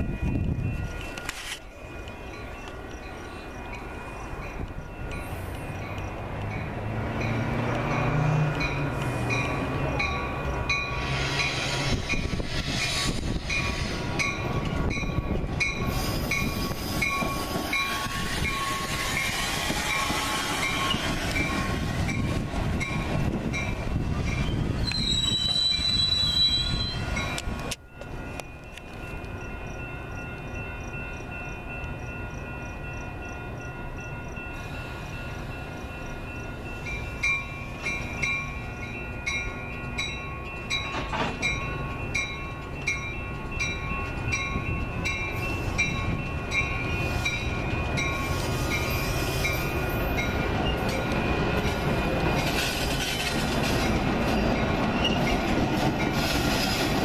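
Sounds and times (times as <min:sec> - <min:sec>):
train running past on rails: 0:00.0 - 0:57.0
wheel squeal: 0:24.3 - 0:27.2.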